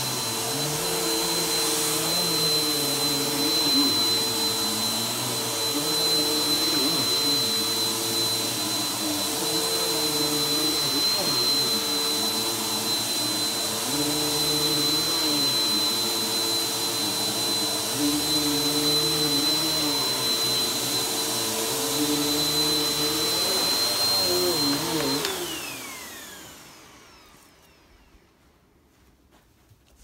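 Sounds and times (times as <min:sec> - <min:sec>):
vacuum motor winding down: 0:00.0 - 0:28.1
vacuum cleaner running on carpet: 0:00.0 - 0:28.4.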